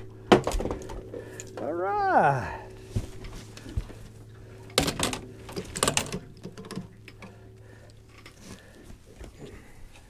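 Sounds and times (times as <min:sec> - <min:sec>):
rattling and clattering in boat: 0:00.0 - 0:01.8, 0:02.9 - 0:07.3
steady low hum: 0:00.0 - 0:10.0.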